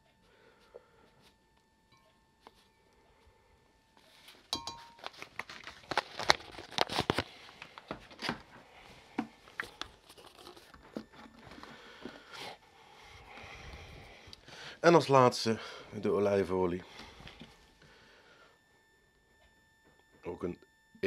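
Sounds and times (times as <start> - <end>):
crinkly rustling: 4.0 - 12.4.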